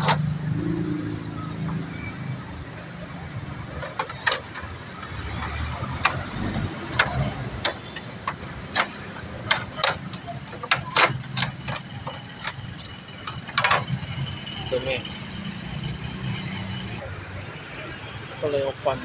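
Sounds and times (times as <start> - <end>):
plastic knocks and clatters: 3.7 - 14.1.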